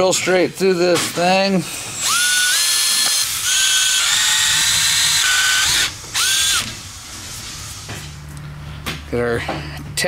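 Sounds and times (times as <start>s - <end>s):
cordless drill drilling metal: 1.7s - 7.0s.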